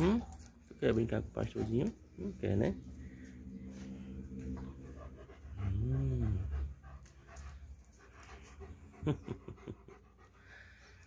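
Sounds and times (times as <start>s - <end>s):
dog panting: 0.0s - 11.0s
low drawn-out moan: 2.7s - 7.0s.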